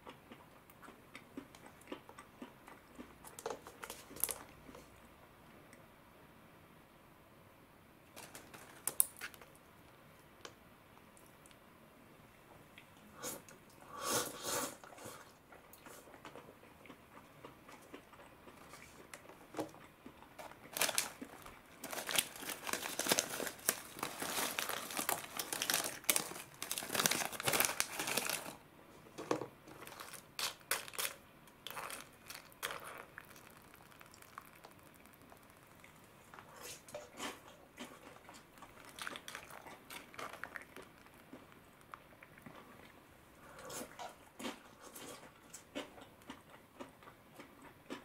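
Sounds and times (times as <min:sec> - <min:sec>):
foil snack bag crinkling: 0:08.2 - 0:09.5, 0:20.4 - 0:28.6, 0:29.7 - 0:35.8.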